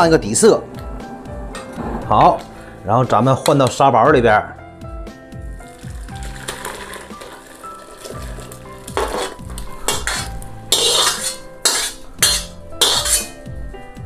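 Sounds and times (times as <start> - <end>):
background music: 0.0 - 14.0
broth pouring into a pot: 5.6 - 9.7
ladle scraping and clanking wok: 6.2 - 13.4.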